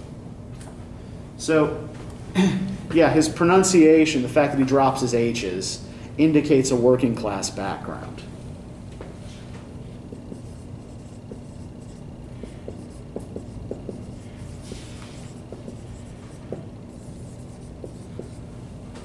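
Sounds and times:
steady low hum: 0:00.0 - 0:19.0
marker writing on whiteboard: 0:09.9 - 0:19.0.

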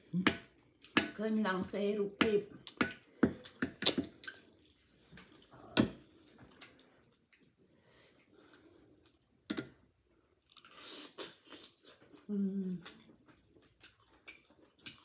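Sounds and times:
wet chewing: 0:10.4 - 0:15.0.

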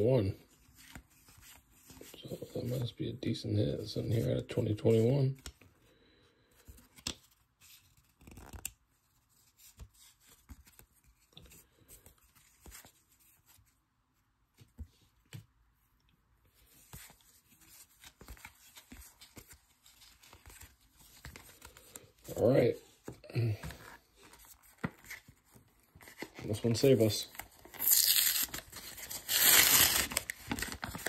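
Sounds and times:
cards flipped by hand: 0:06.7 - 0:08.8, 0:27.8 - 0:31.0.

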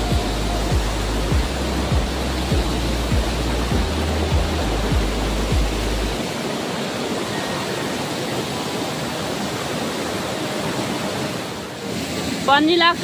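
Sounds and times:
low rumble with thumps: 0:00.0 - 0:06.2
waterfall roaring: 0:00.0 - 0:13.0.

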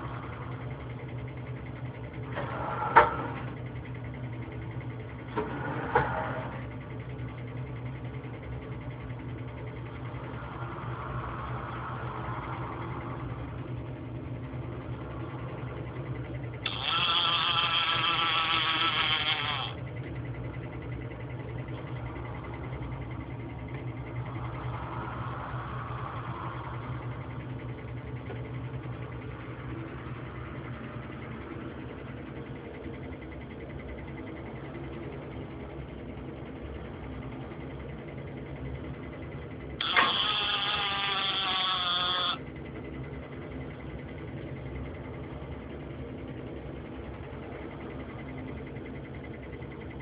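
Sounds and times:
soft motor whines: 0:00.0 - 0:42.4
low machine hum: 0:00.0 - 0:50.0
loud wavering motor whine: 0:05.4 - 0:37.6, 0:39.6 - 0:43.6.

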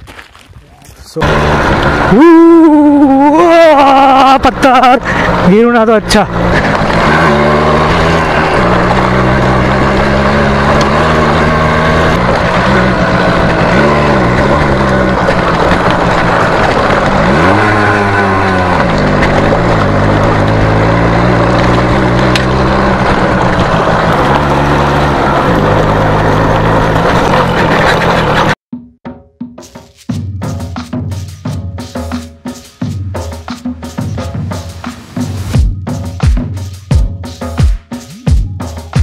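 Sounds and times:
two-stroke motorcycle engine running: 0:01.2 - 0:28.6.

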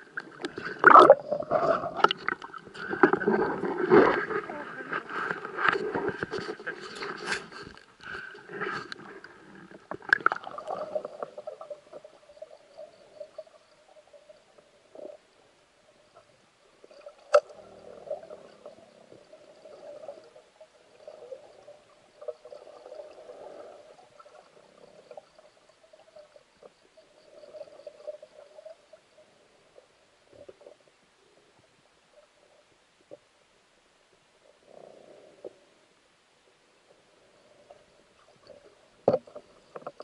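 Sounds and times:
water splashing: 0:00.0 - 0:07.6
muffled underwater noise: 0:00.0 - 0:15.4.

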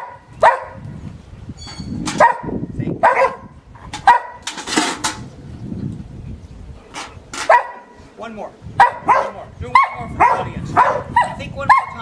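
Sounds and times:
dog barking: 0:00.0 - 0:00.8, 0:02.2 - 0:04.4, 0:07.4 - 0:08.0, 0:08.8 - 0:12.0
metal pail knocking and scraping: 0:01.6 - 0:02.3, 0:03.8 - 0:05.3, 0:06.9 - 0:07.6.

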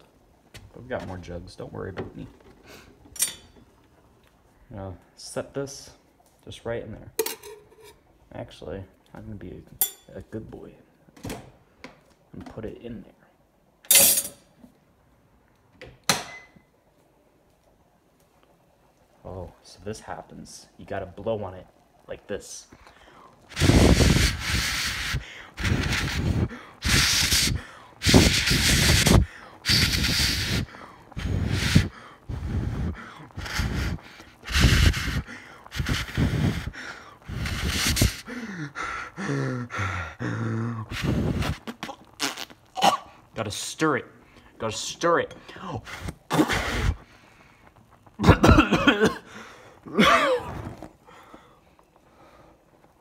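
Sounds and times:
person blowing hard: 0:23.5 - 0:43.1, 0:45.8 - 0:47.1, 0:48.5 - 0:51.1.

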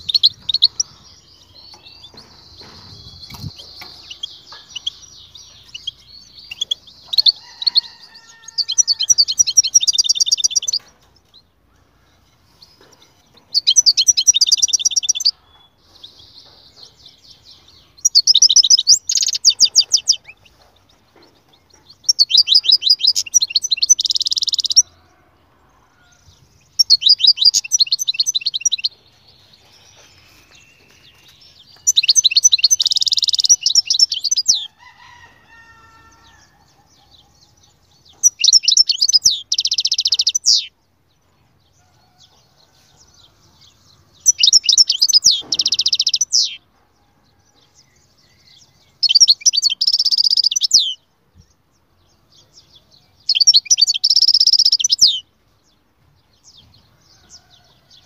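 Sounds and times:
goldfinch singing: 0:00.0 - 0:10.9, 0:26.8 - 0:34.7.

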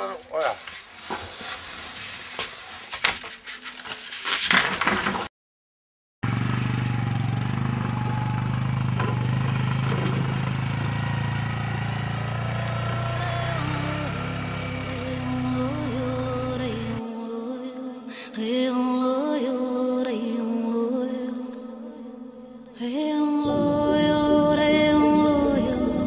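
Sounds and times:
wooden planks knocking and scraping: 0:00.6 - 0:05.3, 0:09.0 - 0:10.9
quad bike engine running: 0:06.2 - 0:17.0, 0:23.5 - 0:26.0.

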